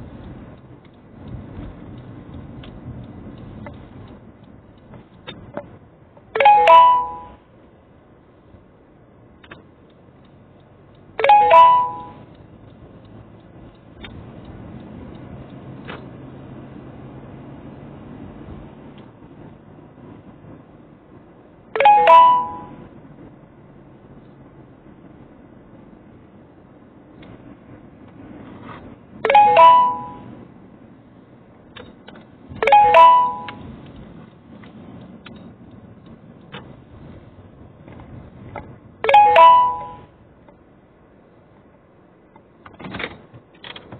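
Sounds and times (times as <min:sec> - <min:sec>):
car engine and road noise: 0:00.0 - 0:43.9
low in-cabin hum: 0:00.0 - 0:43.9
two-note ding-dong chime: 0:06.4 - 0:07.4, 0:11.2 - 0:12.2, 0:21.8 - 0:22.8, 0:29.2 - 0:30.3, 0:32.6 - 0:33.6, 0:39.0 - 0:40.1.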